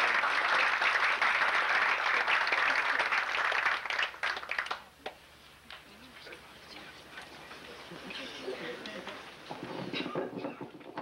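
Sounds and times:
audience applauding: 0.0 - 5.2.

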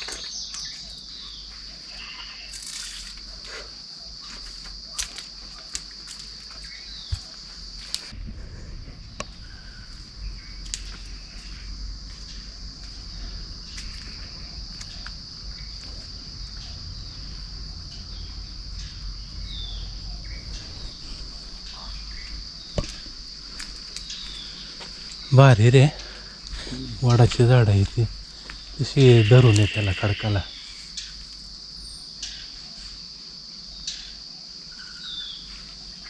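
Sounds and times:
insects droning: 0.0 - 36.0
low rumble: 8.1 - 24.7.

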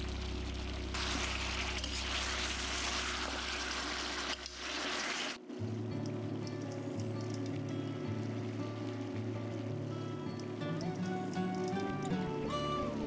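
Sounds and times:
meat sizzling in a pan: 1.0 - 5.4
background music note: 7.7 - 13.0.

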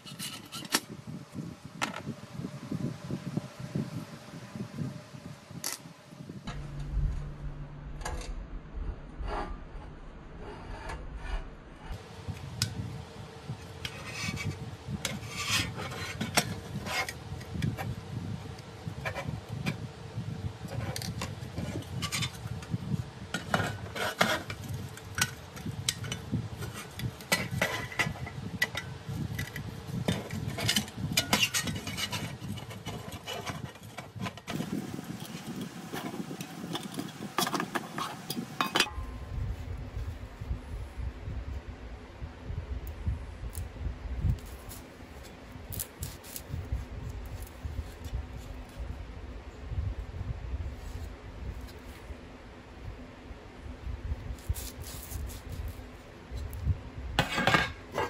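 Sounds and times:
screwdriver scraping metal: 0.0 - 0.8, 23.4 - 38.9.

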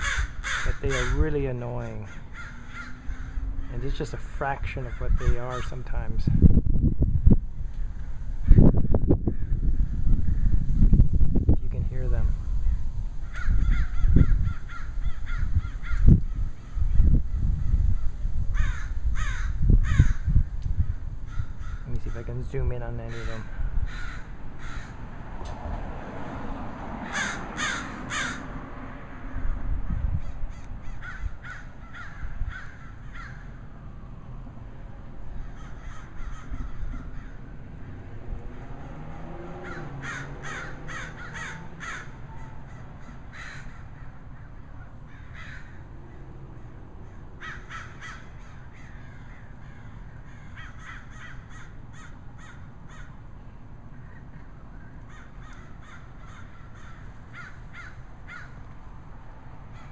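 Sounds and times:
crows cawing: 0.0 - 4.1, 4.8 - 5.9, 7.6 - 10.6, 13.2 - 16.8, 17.6 - 22.4, 23.0 - 25.1, 27.0 - 28.6, 30.2 - 33.7, 35.3 - 38.1, 39.6 - 46.4, 47.0 - 53.2, 55.1 - 58.7, 59.7 - 59.9.

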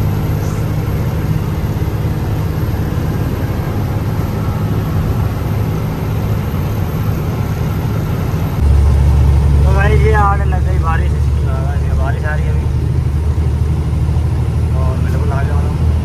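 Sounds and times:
truck engine and road drone: 0.0 - 16.0.

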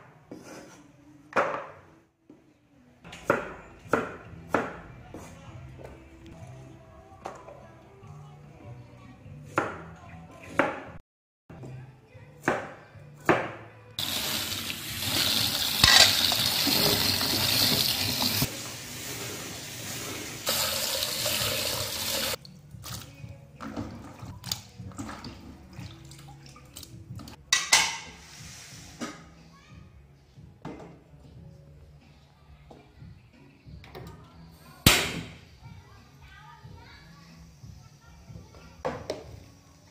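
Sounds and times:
soft background music: 0.0 - 39.9
tap running into basin: 14.0 - 18.5, 20.5 - 23.1.

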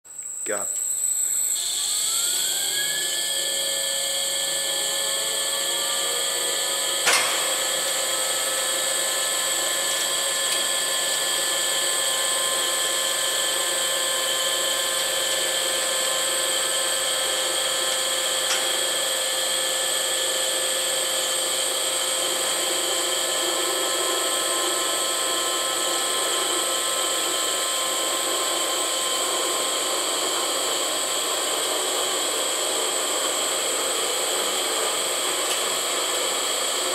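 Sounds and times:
electric motor whine: 0.5 - 36.9
click: 35.5 - 35.7.

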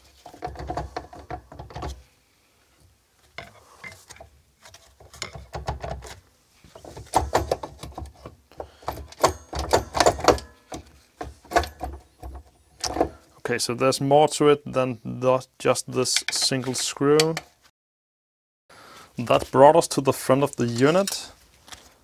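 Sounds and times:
plastic parts clicking and scraping: 0.0 - 2.1, 3.2 - 13.3.

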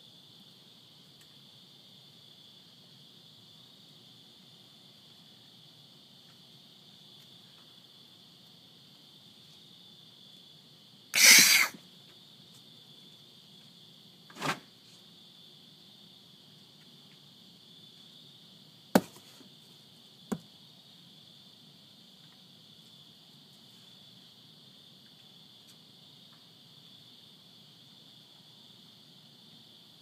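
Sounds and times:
crickets chirring: 0.0 - 30.0
short rush of noise: 11.2 - 11.8
knocks on wooden deck: 19.0 - 19.2.

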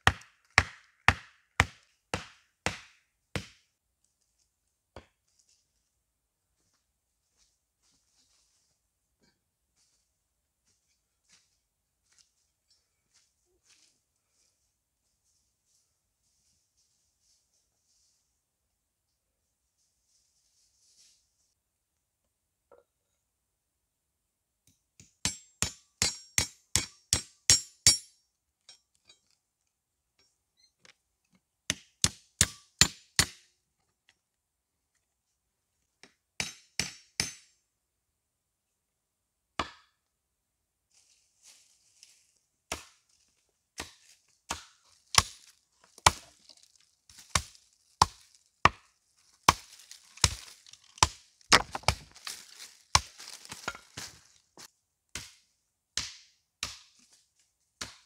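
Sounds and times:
hatchet chopping wood: 0.0 - 3.7, 25.0 - 28.0, 31.7 - 33.5, 36.4 - 37.5, 39.6 - 40.0, 42.7 - 43.0, 43.8 - 45.4, 46.0 - 46.3, 47.2 - 48.8, 49.5 - 52.2, 53.0 - 54.1, 55.1 - 55.4, 56.0 - 57.0, 57.8 - 58.0.

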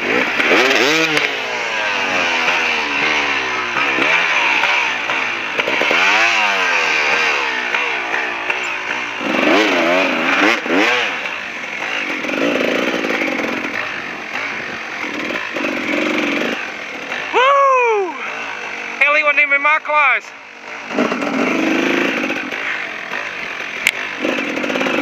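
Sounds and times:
dirt bike engine revving: 0.0 - 25.0.

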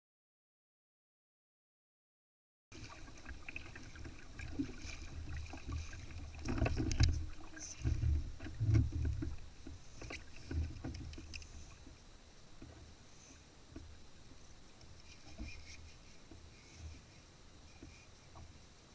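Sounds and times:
water sloshing against kayak hull: 2.7 - 18.8
low thumps and sharp knocks: 6.4 - 11.4.

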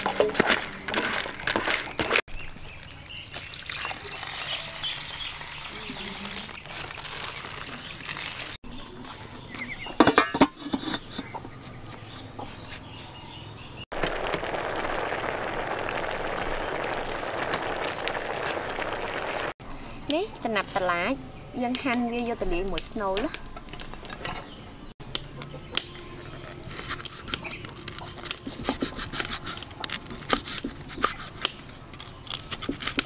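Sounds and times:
metal pot and lid clanking: 10.0 - 10.9.

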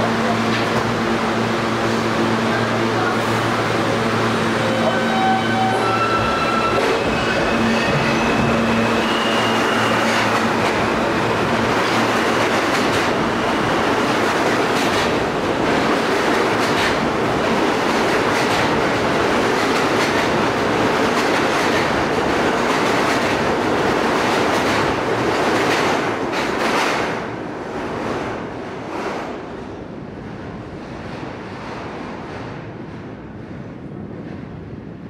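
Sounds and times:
train whine: 0.0 - 23.2
train wheels rumbling on rails: 0.0 - 35.0
clacks over rail joints: 14.2 - 17.1, 17.9 - 23.4.

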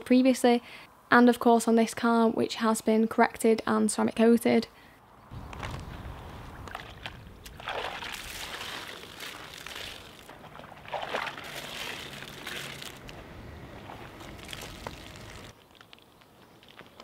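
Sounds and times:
water splashing and sloshing in bucket: 5.5 - 15.5
water pouring: 6.6 - 13.2, 13.8 - 15.5.

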